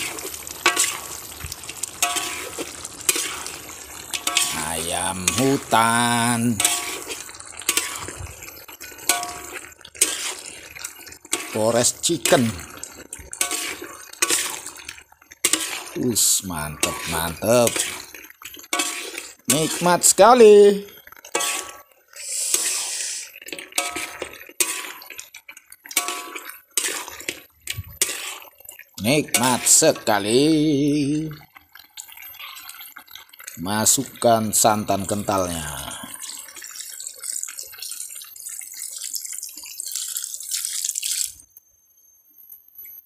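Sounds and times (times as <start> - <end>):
spoon stirring food in wok: 0.0 - 40.0
liquid pouring with crackles: 0.0 - 43.0
spoon clinking on pan: 9.1 - 9.6, 23.6 - 25.0, 25.9 - 27.1.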